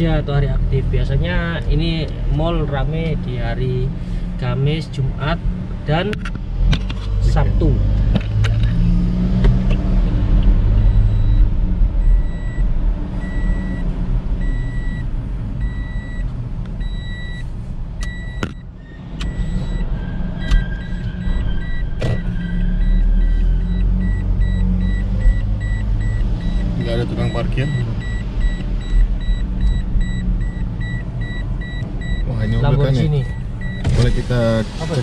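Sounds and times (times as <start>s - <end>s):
engine and tyre rumble: 0.0s - 35.0s
regular high beeps: 10.8s - 12.6s, 13.2s - 16.2s, 16.8s - 33.9s.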